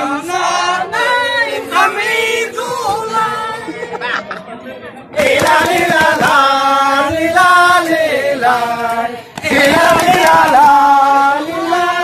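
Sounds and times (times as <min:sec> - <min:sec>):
men chanting in unison: 0:05.2 - 0:12.0.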